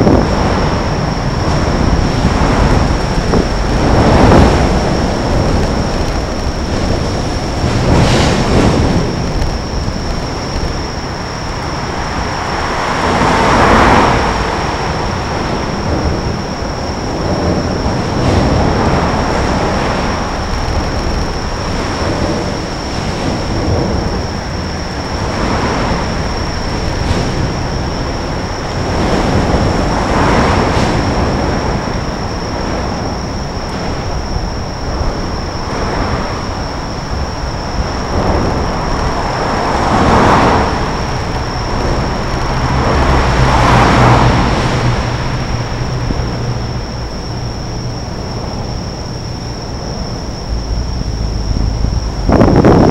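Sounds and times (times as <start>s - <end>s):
road traffic rumble: 0.0s - 52.9s
steady high whine: 0.0s - 52.9s
vehicles passing: 37.8s - 52.8s.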